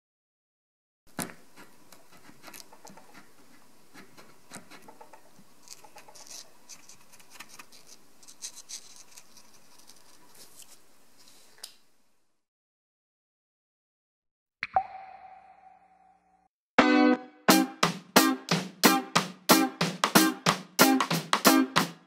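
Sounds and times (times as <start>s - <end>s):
marker tip scratching on paper: 1.2s - 10.6s.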